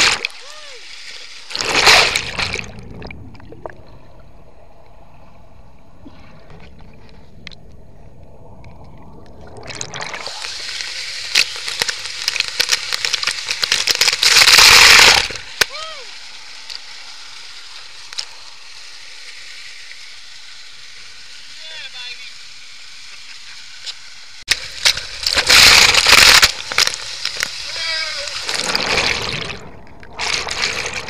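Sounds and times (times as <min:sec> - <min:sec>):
water splash: 0:00.0 - 0:04.2, 0:08.9 - 0:16.1, 0:24.4 - 0:31.0
muffled underwater churning: 0:01.2 - 0:15.5, 0:24.5 - 0:31.0
waterfall rushing and bubbling: 0:24.3 - 0:31.0.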